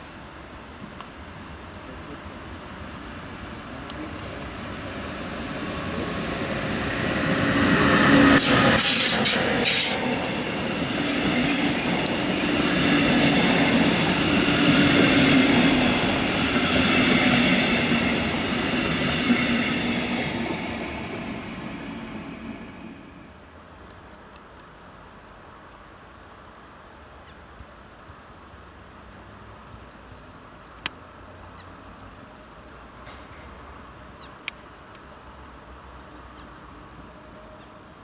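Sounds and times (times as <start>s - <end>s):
electric train passing: 0.0s - 23.9s.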